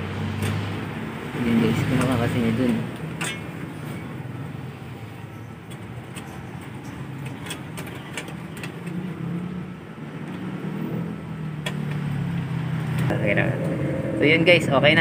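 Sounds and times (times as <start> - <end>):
small metal clicks and scrapes: 5.7 - 9.2.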